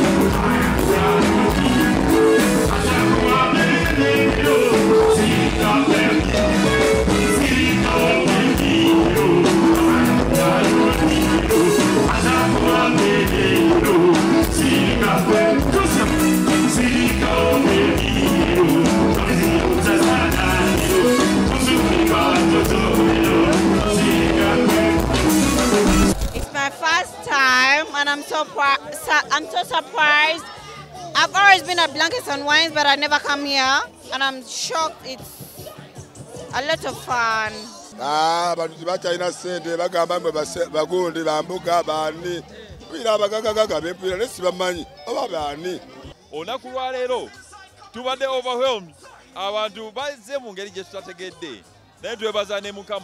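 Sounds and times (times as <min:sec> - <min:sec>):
man singing into a microphone: 0:00.0 - 0:25.5
bass guitar: 0:00.0 - 0:26.5
drums: 0:00.0 - 0:26.6, 0:35.0 - 0:37.6.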